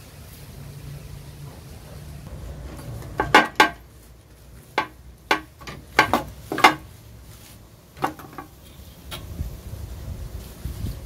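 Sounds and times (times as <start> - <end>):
sheet metal clanking and rattling: 2.7 - 3.9.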